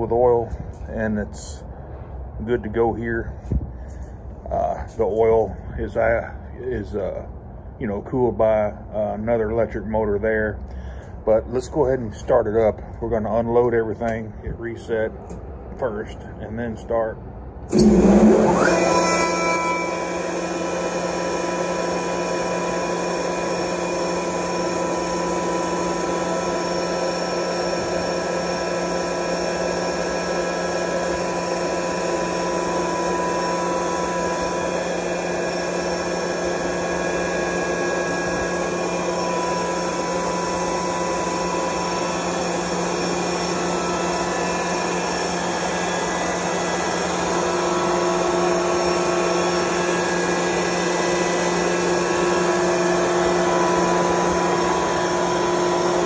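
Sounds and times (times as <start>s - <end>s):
air compressor hum and whine: 0.0s - 56.0s.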